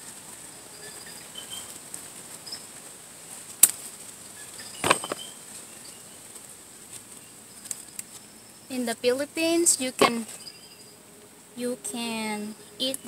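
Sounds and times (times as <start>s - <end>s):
tomato plants rustling: 0.0s - 10.6s
faint high chirps: 0.4s - 1.8s, 4.4s - 6.3s, 9.8s - 13.0s
garden scissors snipping: 10.0s - 10.4s.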